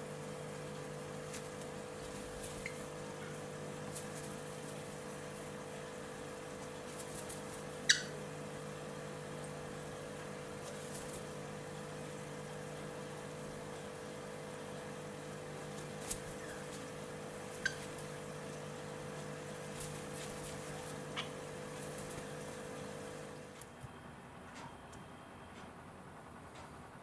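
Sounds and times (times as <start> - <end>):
electrical hum: 0.0 - 27.0
cockatiel chirping: 7.8 - 8.2, 17.5 - 18.1.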